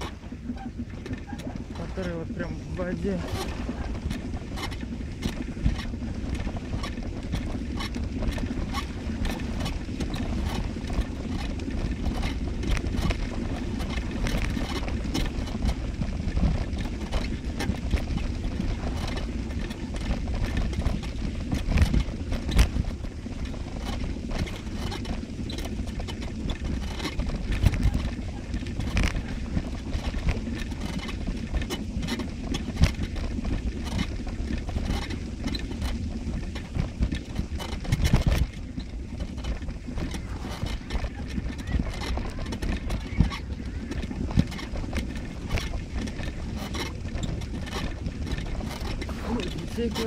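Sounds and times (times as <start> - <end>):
low rumble: 0.0 - 50.0
crunching footsteps: 26.5 - 50.0.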